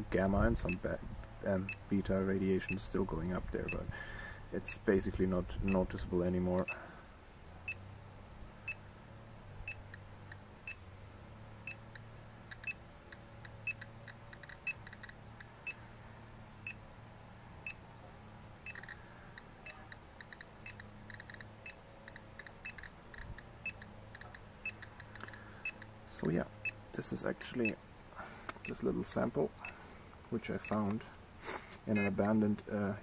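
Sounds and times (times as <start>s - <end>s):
geiger counter clicking: 11.6s - 15.8s, 18.7s - 25.9s.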